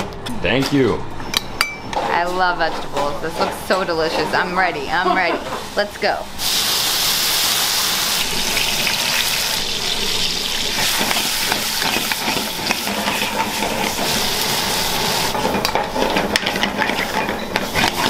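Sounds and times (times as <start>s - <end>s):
spoon scraping metal pan: 2.0s - 5.8s, 10.7s - 18.0s
food sizzling in pans: 3.3s - 18.0s.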